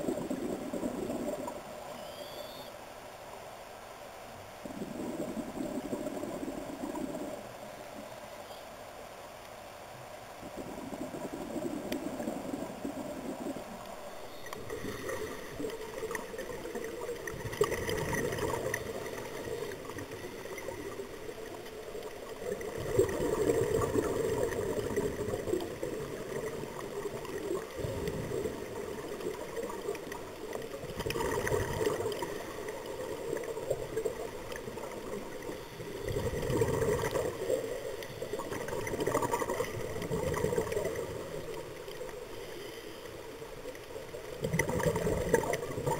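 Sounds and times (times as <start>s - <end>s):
underwater regulator bubbles: 4.6s - 7.5s, 10.4s - 42.2s, 43.7s - 45.9s.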